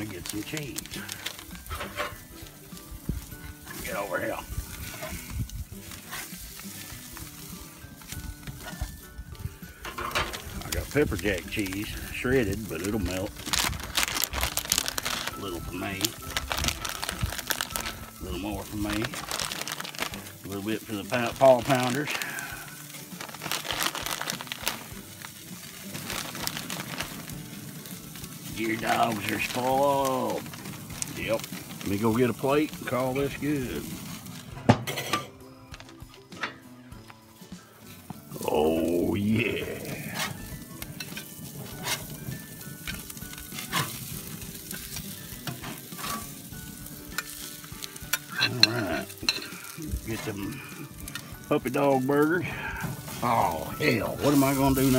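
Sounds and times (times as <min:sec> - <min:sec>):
plastic bag crinkling: 0:00.0 - 0:09.0, 0:09.8 - 0:34.6, 0:38.2 - 0:54.9
burgers sizzling on a grill: 0:00.0 - 0:54.9
metal spatula scraping grate: 0:01.3 - 0:03.9, 0:04.6 - 0:08.9, 0:09.7 - 0:13.2, 0:40.1 - 0:46.5.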